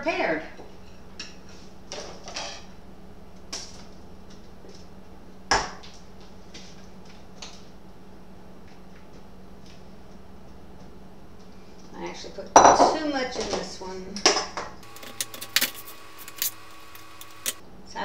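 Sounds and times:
steady low hum: 0:13.7 - 0:18.0.

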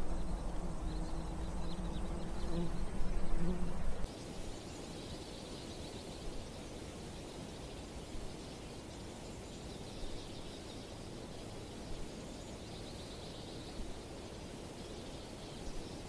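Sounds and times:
low steady hum: 0:00.0 - 0:04.1.

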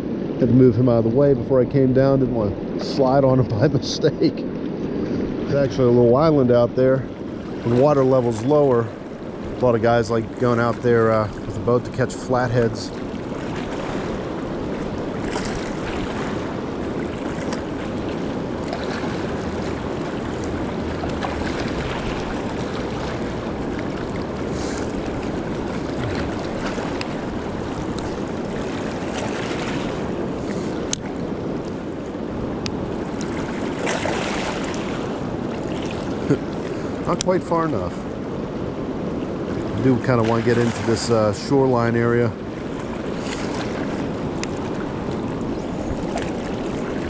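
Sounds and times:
river rushing over rapids: 0:11.0 - 0:47.0.

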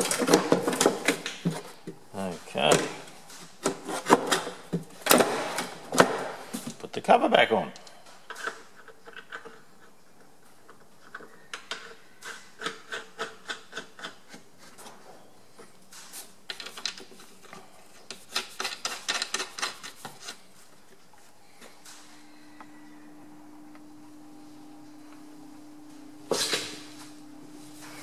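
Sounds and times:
low steady hum: 0:21.0 - 0:28.0.

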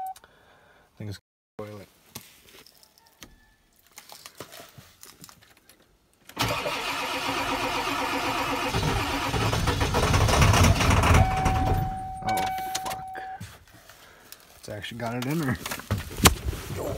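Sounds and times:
diesel engine starting and running: 0:06.4 - 0:13.2.

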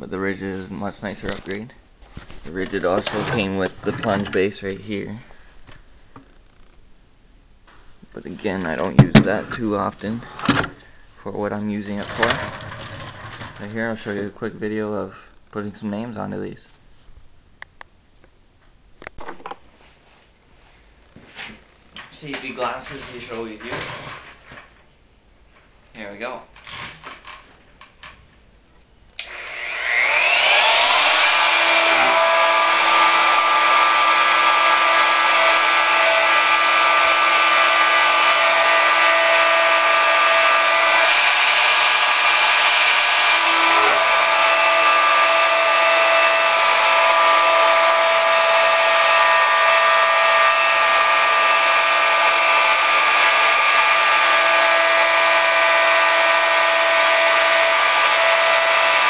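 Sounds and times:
router motor whining: 0:29.2 - 0:59.0.

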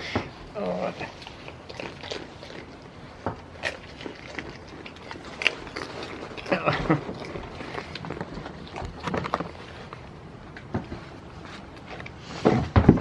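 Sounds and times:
goats rustling and knocking: 0:02.2 - 0:13.0.

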